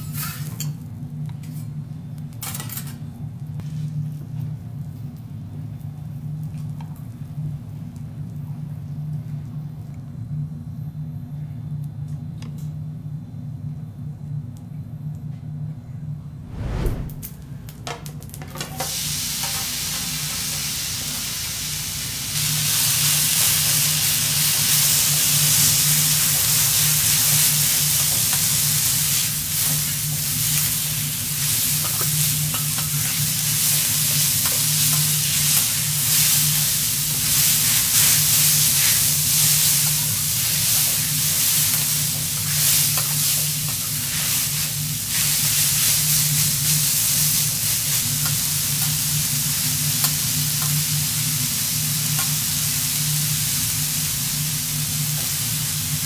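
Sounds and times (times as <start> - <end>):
steady low hum: 15.9 - 17.8
rice sizzling on griddle: 18.6 - 56.0.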